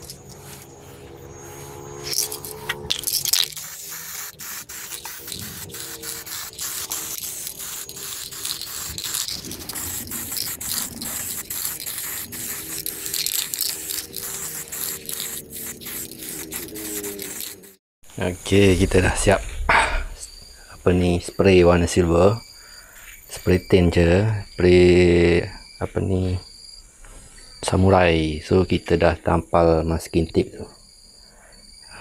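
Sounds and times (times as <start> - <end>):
aerosol spray can hissing: 0.0 - 0.8, 1.5 - 17.8.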